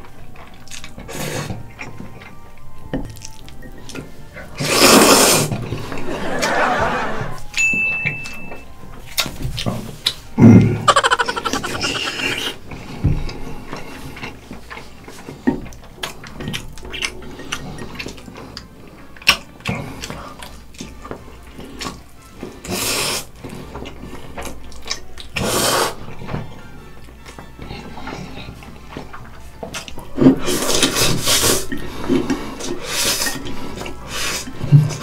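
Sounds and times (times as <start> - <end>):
wet chewing smacks: 0.6 - 1.0
noodle slurps: 4.6 - 5.5, 22.7 - 23.3, 25.4 - 26.0, 30.4 - 33.3.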